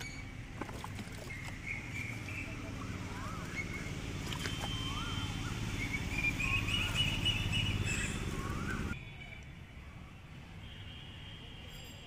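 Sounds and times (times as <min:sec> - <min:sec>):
bird whistling: 0:01.3 - 0:09.0.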